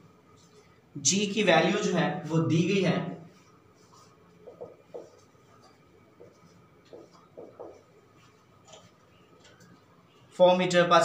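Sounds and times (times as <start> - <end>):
marker pen writing on whiteboard: 3.3 - 9.8.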